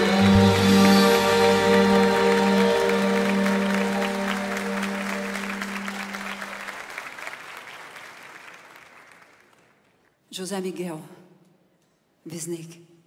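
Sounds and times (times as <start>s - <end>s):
live band held chord: 0.0s - 6.8s
audience applauding: 0.0s - 10.1s.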